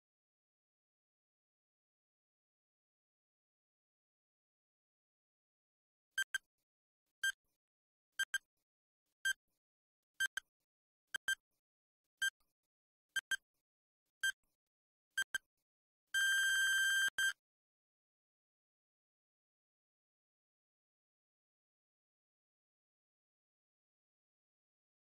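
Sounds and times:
electronic countdown beeps: 0:06.2 - 0:06.4, 0:13.2 - 0:13.4, 0:15.2 - 0:15.4.

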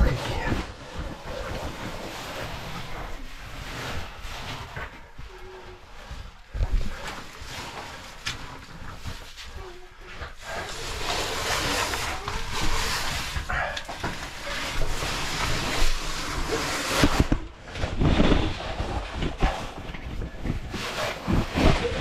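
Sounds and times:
gear scraping against rock: 0:10.2 - 0:22.0.

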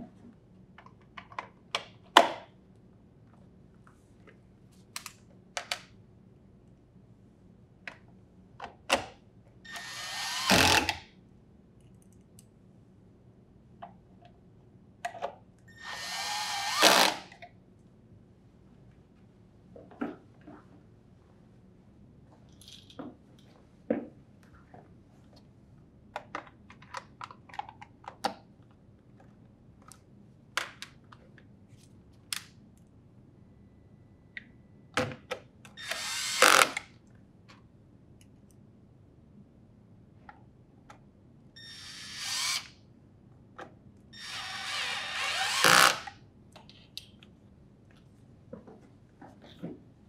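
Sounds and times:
cordless drill driving screws: 0:09.7 - 0:11.0, 0:15.8 - 0:17.3, 0:35.8 - 0:36.8, 0:41.6 - 0:42.7, 0:44.2 - 0:46.1.

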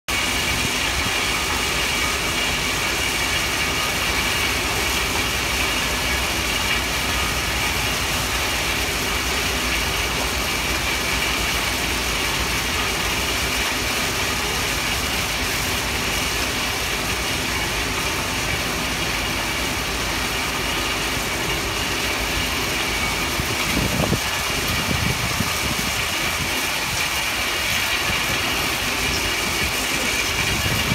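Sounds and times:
high machine whine: 0:00.1 - 0:30.9.

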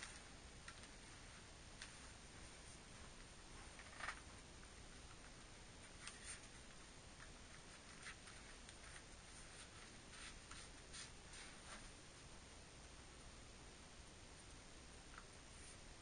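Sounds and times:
quiet hiss: 0:00.0 - 0:16.0
laces rustling and scratching: 0:05.1 - 0:11.9.

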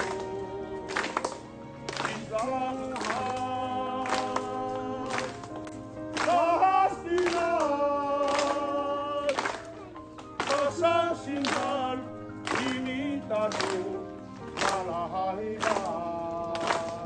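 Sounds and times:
sharp clap beat: 0:00.0 - 0:15.0, 0:15.6 - 0:17.0
person singing long notes: 0:00.0 - 0:17.0.

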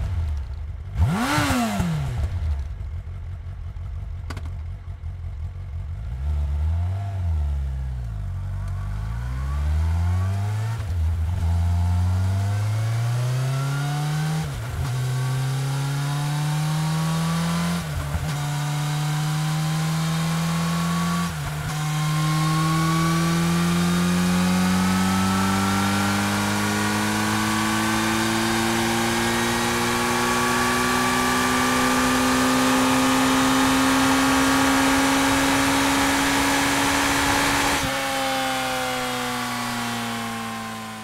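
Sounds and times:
motorcycle engine accelerating: 0:00.0 - 0:41.0.

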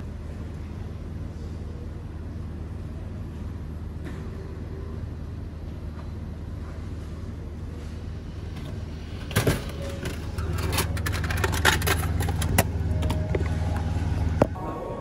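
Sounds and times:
vending machine low hum: 0:00.0 - 0:15.0.

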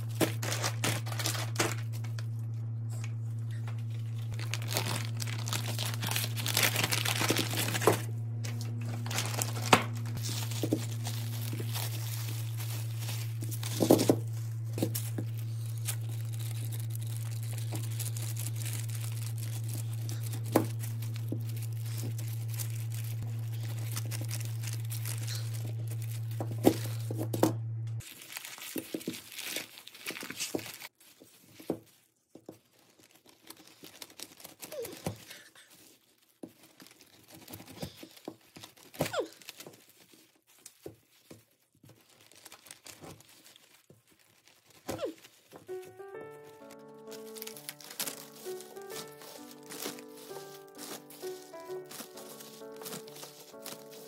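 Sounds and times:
steady low hum: 0:00.0 - 0:28.0
rustling and clicking handling noises: 0:00.0 - 0:54.0.

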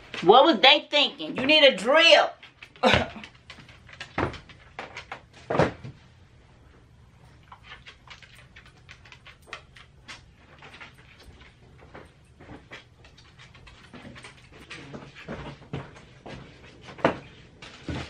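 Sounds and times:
dog claws clicking on floor: 0:01.3 - 0:05.6, 0:07.1 - 0:18.0
footsteps on hardwood floor: 0:11.2 - 0:18.0.

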